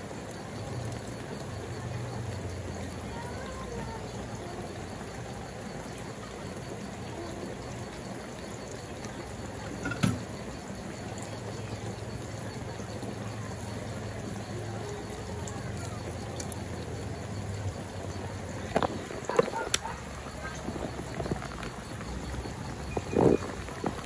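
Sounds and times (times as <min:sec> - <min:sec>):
sauce bubbling in a pan: 0:00.0 - 0:24.0
knock: 0:09.8 - 0:10.2.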